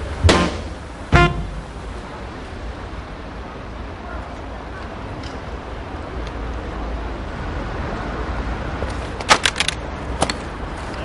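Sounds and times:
city street hum: 0:00.0 - 0:11.0
objects clattering on pavement: 0:08.8 - 0:11.0.

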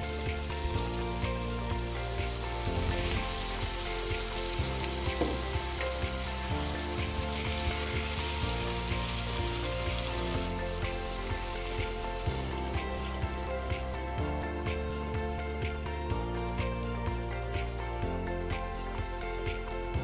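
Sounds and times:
food sizzling in a pan: 0:00.0 - 0:14.0
background music: 0:00.0 - 0:20.0.

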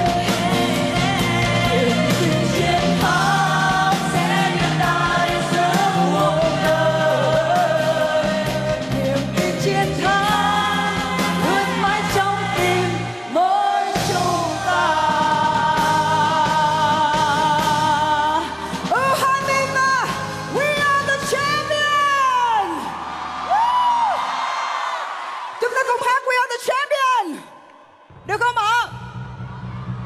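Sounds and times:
woman singing pop song: 0:00.0 - 0:22.9.

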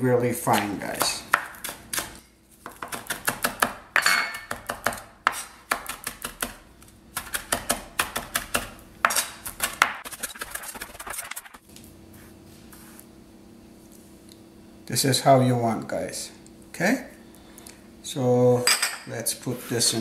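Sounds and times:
knife chopping on plastic board: 0:00.5 - 0:10.1.

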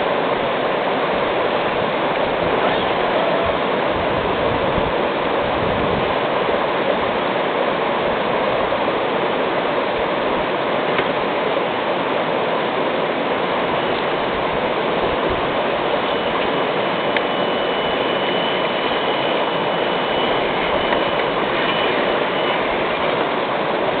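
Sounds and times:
stream flowing over rocks: 0:00.0 - 0:24.0
faint thin high tone: 0:17.1 - 0:22.8.

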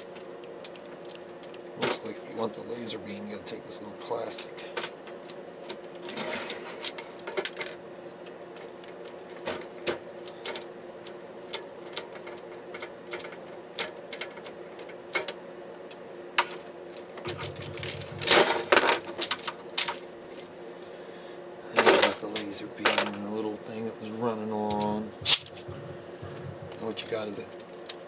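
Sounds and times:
plastic and metal parts clattering: 0:17.0 - 0:20.4, 0:21.8 - 0:23.2.

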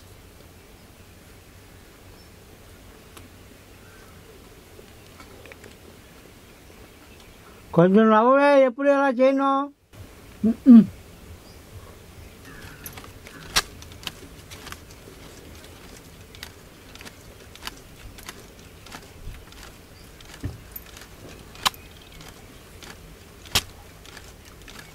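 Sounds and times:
palm-leaf hand fan rustling: 0:11.9 - 0:24.9
eating by hand off a leaf: 0:12.5 - 0:24.9
sharp snaps: 0:12.5 - 0:24.9.

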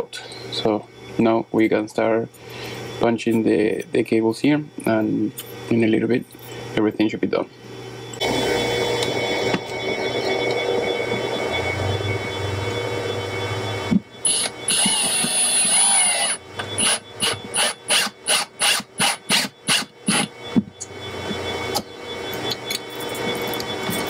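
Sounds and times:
drill motor whining: 0:08.1 - 0:24.0
screws rasping into plywood: 0:14.2 - 0:20.3.

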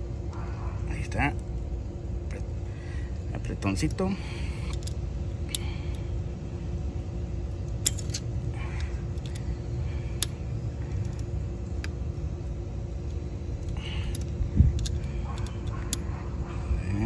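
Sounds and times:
faint hum: 0:00.0 - 0:17.0
allen key metal clicks: 0:03.6 - 0:06.0, 0:07.5 - 0:09.5, 0:10.1 - 0:16.3
low rumble: 0:04.2 - 0:17.0.

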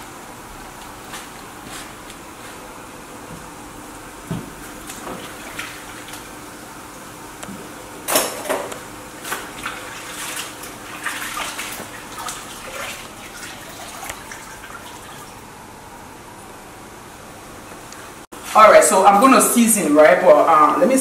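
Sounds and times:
water splashing and running: 0:04.8 - 0:06.3, 0:09.2 - 0:15.4.

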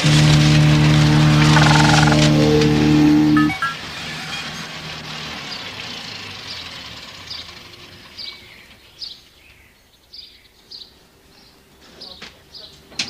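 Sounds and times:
diesel engine running: 0:00.0 - 0:08.8
bird chirping: 0:01.5 - 0:02.6.

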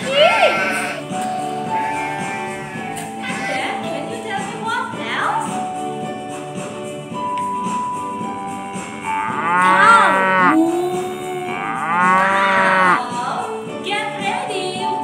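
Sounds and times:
keyboard music: 0:00.0 - 0:13.9
cow mooing: 0:08.8 - 0:13.0.

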